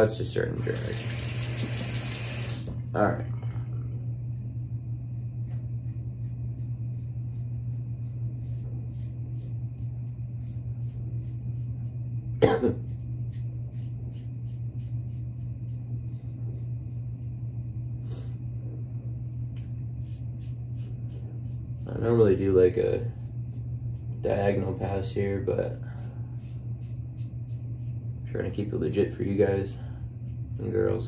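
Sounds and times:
steady low hum: 0.0s - 31.0s
person coughing: 12.4s - 12.9s.

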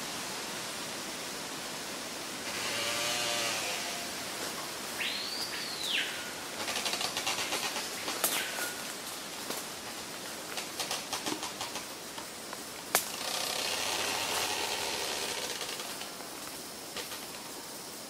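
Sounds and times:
steady hiss: 0.0s - 18.0s
bird calls: 5.0s - 8.9s
sharp crack: 12.9s - 13.4s.

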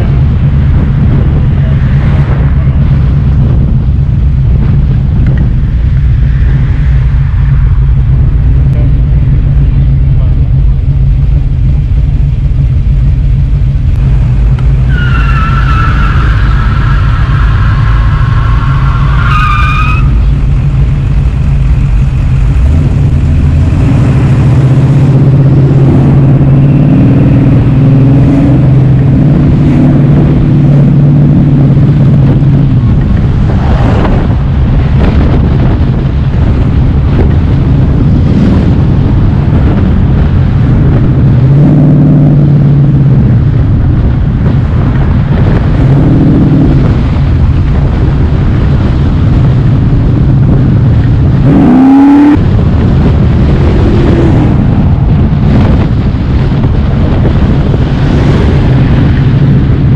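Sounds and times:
car engine drone: 0.0s - 59.9s
wavering high squeal: 14.9s - 20.2s.

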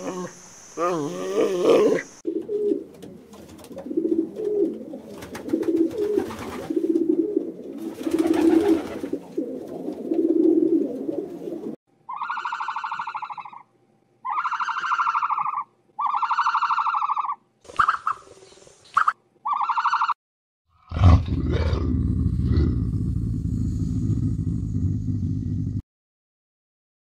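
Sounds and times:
pigeons cooing: 0.0s - 13.6s
buzzy pulsing bird calls: 12.1s - 20.2s.

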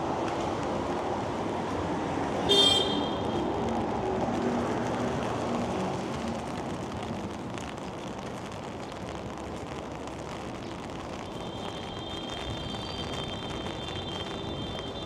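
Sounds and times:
passing vehicles: 0.0s - 15.0s
car horn: 2.5s - 3.4s.

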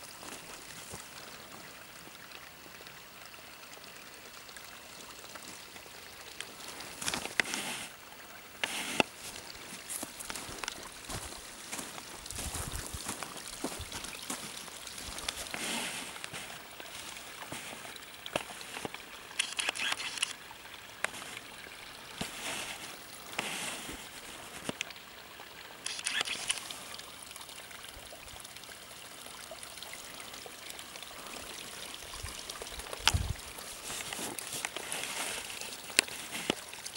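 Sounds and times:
liquid trickling over rocks: 0.0s - 36.9s
clicks and rustles: 32.9s - 36.8s.

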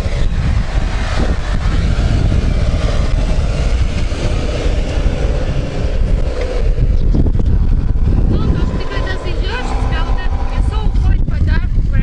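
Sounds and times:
car engine running under load: 0.0s - 12.0s.

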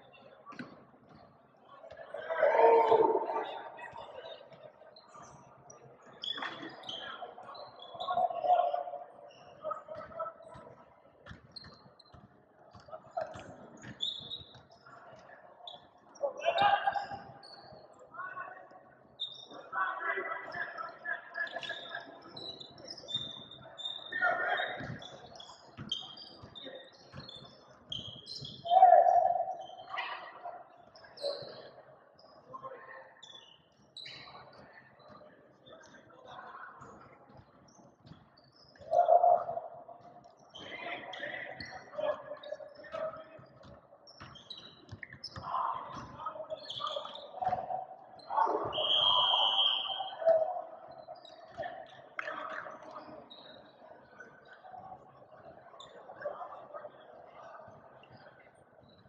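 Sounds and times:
players calling out: 1.9s - 4.2s
sneakers squeaking: 1.9s - 17.9s, 19.2s - 19.6s, 20.5s - 32.4s, 33.2s - 36.1s, 36.8s - 53.8s
loud shout: 2.2s - 3.8s, 16.3s - 17.3s, 28.6s - 30.4s
sneakers squeaking on court: 9.3s - 15.0s, 21.6s - 28.7s, 42.5s - 48.9s.

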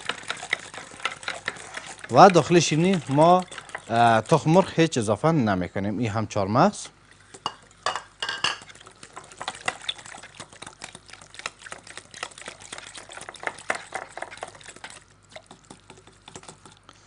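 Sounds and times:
whisk clinking against glass bowl: 0.0s - 4.7s, 7.4s - 16.7s
batter sloshing: 0.0s - 5.6s, 6.7s - 16.9s.

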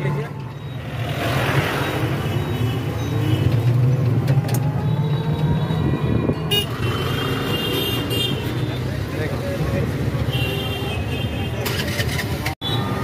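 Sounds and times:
road rumble: 0.0s - 13.0s
vehicle horn toots: 5.8s - 8.5s.

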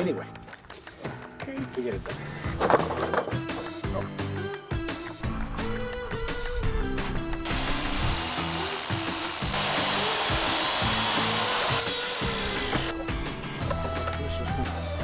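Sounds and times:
background music: 0.0s - 15.0s
miter saw cutting plastic pipe: 7.4s - 13.1s.

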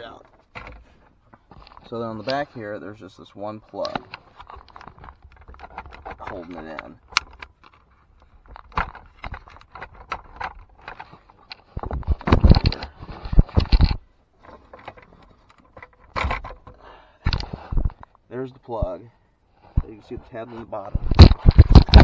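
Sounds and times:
rubbing and scraping: 0.3s - 18.1s, 19.5s - 22.0s
plastic clicks and scrapes: 3.7s - 18.1s, 19.6s - 22.0s.

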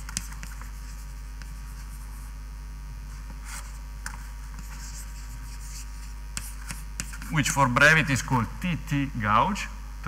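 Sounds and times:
writing scratches: 0.0s - 2.3s, 3.1s - 7.6s
steady low hum: 0.0s - 10.0s.

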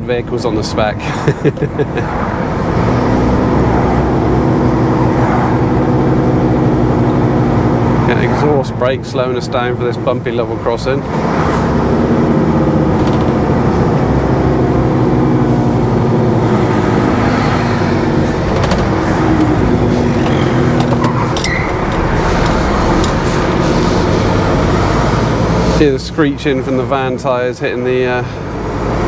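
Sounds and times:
diesel engine running: 0.0s - 29.0s
exhaust brake: 11.0s - 26.8s
knocks and rattles over bumps: 12.1s - 14.2s, 17.9s - 25.6s.

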